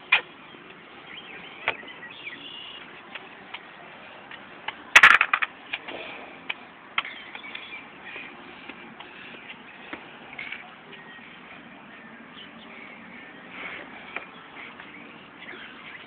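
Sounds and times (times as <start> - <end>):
toy blocks clicking and scuffing: 4.7 - 6.0
toy blocks clattering: 5.0 - 5.5.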